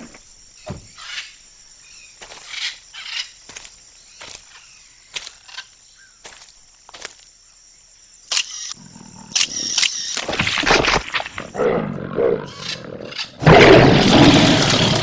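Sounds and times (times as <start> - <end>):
high insect chirring: 0.0 - 10.4.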